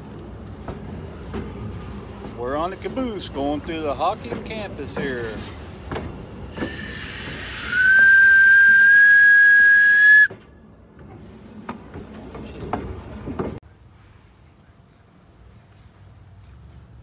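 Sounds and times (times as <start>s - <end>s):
steam hiss: 6.4s - 10.3s
steam locomotive whistle: 6.6s - 10.3s.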